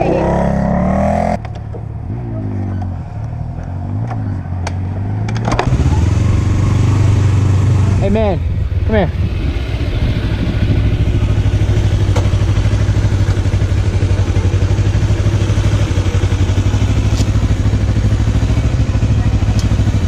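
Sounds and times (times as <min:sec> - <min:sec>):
motorcycle engine idling: 0:05.7 - 0:20.0.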